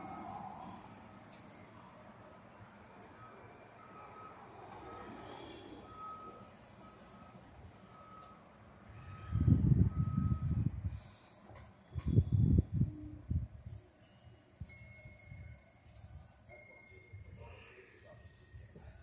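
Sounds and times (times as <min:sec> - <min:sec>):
insect chirping: 0:00.0 - 0:19.0.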